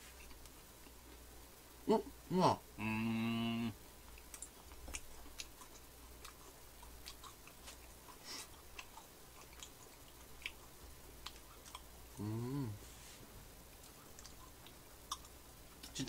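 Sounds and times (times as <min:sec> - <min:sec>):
person humming: 0:01.9 - 0:03.8, 0:12.2 - 0:12.8
chewing with crisp clicks: 0:04.0 - 0:12.3, 0:13.7 - 0:16.0.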